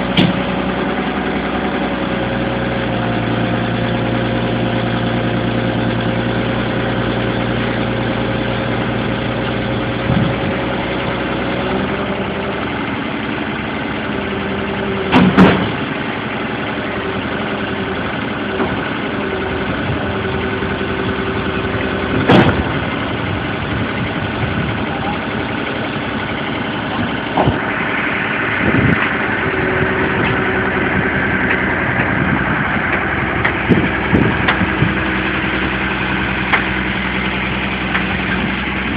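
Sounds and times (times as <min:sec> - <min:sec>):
excavator diesel engine running: 0:00.0 - 0:38.9
high steady whine: 0:06.7 - 0:38.9
loud metallic clanks: 0:15.1 - 0:16.0, 0:21.9 - 0:23.1, 0:26.3 - 0:38.6.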